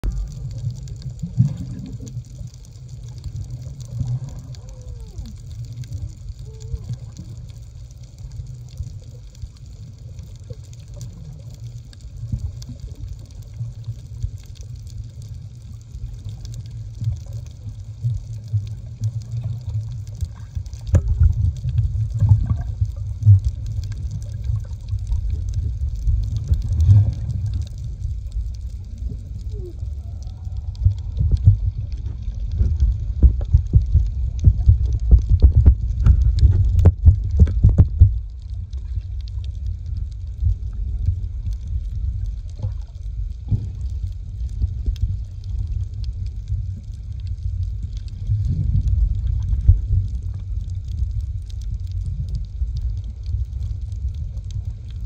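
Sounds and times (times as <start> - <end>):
underwater rumble of moving water: 0.0 - 55.0.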